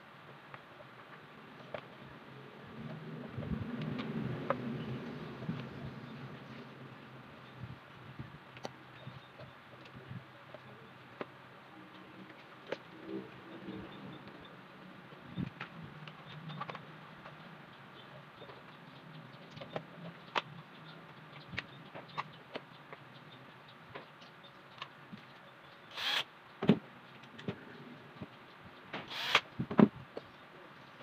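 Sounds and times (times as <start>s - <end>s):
cordless drill driving screws: 25.9s - 26.3s, 29.1s - 29.4s.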